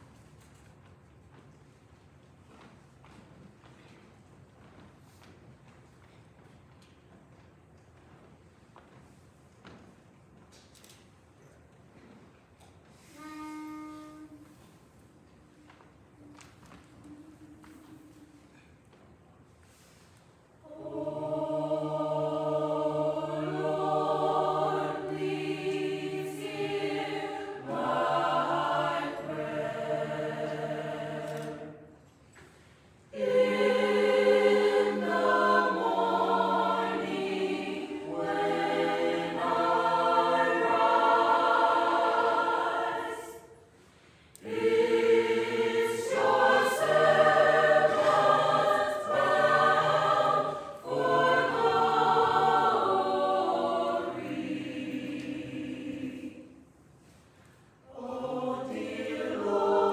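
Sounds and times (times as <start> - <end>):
mixed choir singing a cappella: 19.7 - 59.9.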